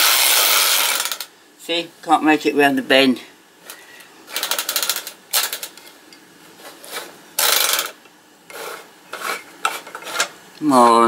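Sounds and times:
toy train clockwork motor whirring: 0:00.0 - 0:01.3, 0:07.4 - 0:09.4.

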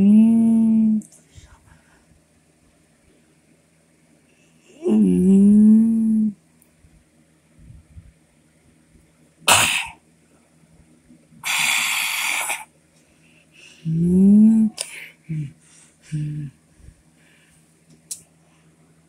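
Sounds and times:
person coughing: 0:09.5 - 0:10.0
hiss: 0:11.4 - 0:12.7.

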